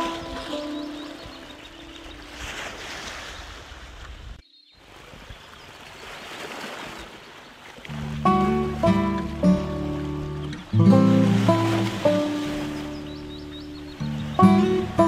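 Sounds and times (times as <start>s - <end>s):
soft plucked instrumental music: 0.0s - 2.4s, 7.9s - 15.0s
ocean surf: 0.0s - 3.8s, 7.8s - 15.0s.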